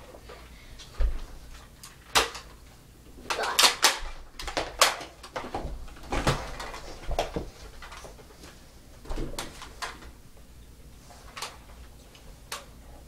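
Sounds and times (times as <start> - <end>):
rustling of people moving: 0.0 - 13.0.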